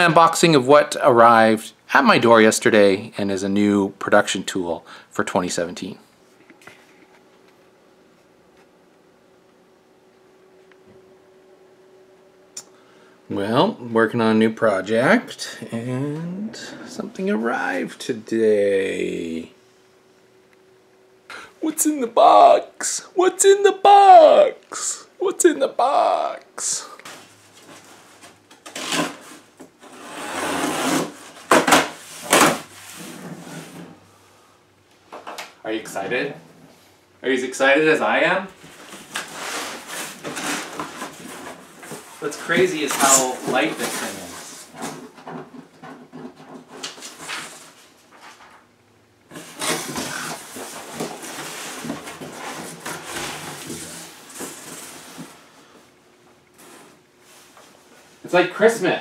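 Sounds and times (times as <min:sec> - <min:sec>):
packing tape ripping: 0:28.6 - 0:32.6, 0:49.3 - 0:54.6
cardboard rustling and scraping: 0:38.6 - 0:48.6, 0:49.3 - 0:55.7, 0:56.6 - 0:58.0
cardboard flaps scraping: 0:49.3 - 0:55.5.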